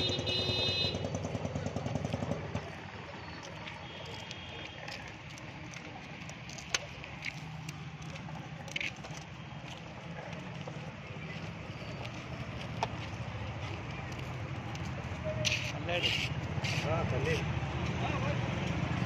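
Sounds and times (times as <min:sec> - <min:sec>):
horn toot: 0:00.0 - 0:01.1
motorcycle running: 0:00.0 - 0:19.0
traffic background: 0:00.0 - 0:19.0.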